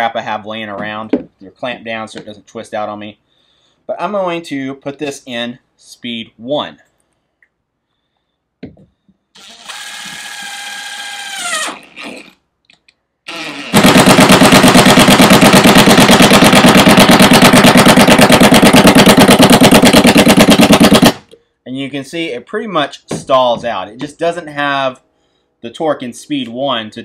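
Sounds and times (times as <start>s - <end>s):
impact driver whirring: 9.4s - 12.3s, 13.3s - 21.2s
impact driver hammering: 13.7s - 21.2s.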